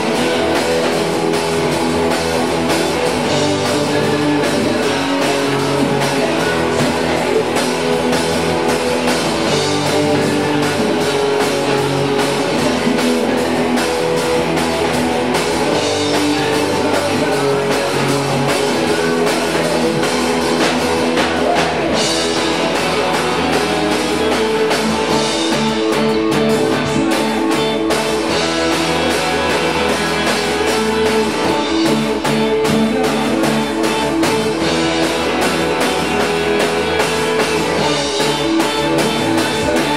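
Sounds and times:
rock band playing live: 0:00.0 - 0:39.9.

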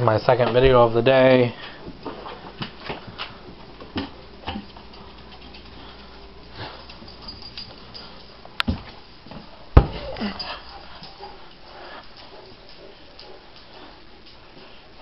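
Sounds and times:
light taps and clicks indoors: 0:01.8 - 0:06.2.

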